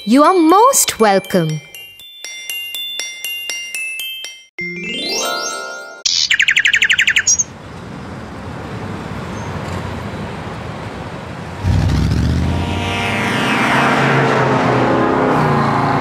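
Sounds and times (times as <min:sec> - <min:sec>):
cartoon bird chirping trill: 0:06.0 - 0:07.5
faint street background noise: 0:06.8 - 0:11.9.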